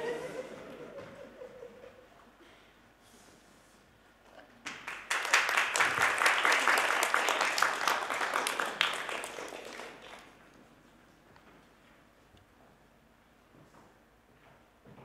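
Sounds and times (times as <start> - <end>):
audience applauding: 4.6 - 10.4.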